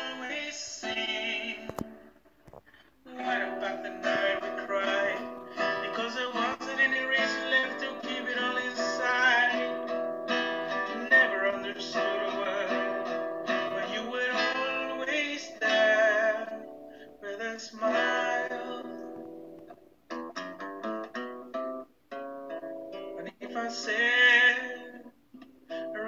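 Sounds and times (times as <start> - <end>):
man singing: 0.0 - 2.1, 3.0 - 10.0, 10.6 - 19.3, 23.2 - 26.0
acoustic guitar strumming: 0.0 - 26.0.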